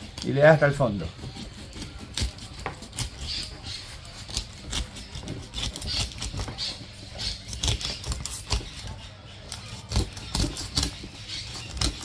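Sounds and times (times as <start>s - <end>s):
knife crunching through fish plates: 0.0s - 12.0s.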